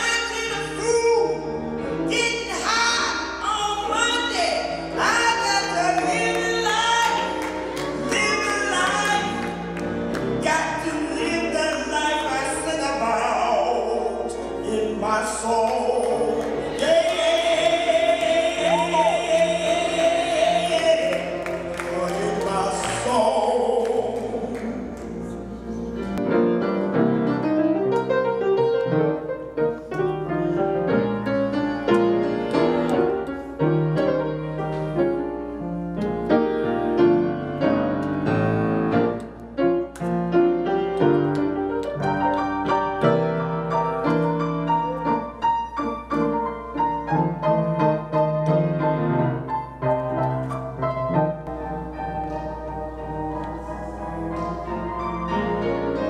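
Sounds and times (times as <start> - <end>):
grand piano playing: 0.0 - 56.0
woman singing gospel: 2.1 - 9.5, 10.4 - 25.7.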